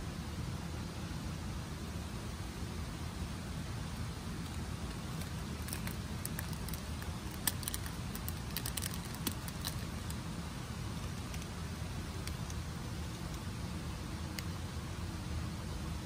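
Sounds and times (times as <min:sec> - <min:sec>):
wood fire crackling: 0:04.4 - 0:10.2.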